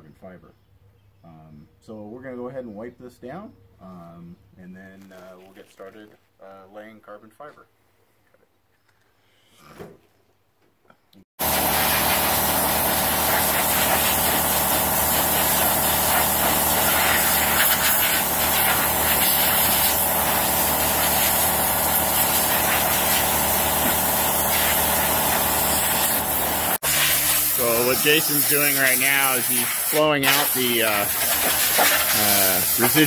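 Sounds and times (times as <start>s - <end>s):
air blower rushing hiss: 11.4s - 33.0s.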